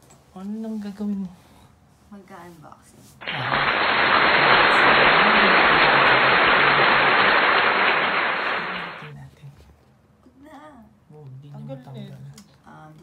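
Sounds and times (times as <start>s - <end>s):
loud even hiss: 3.2s - 9.1s.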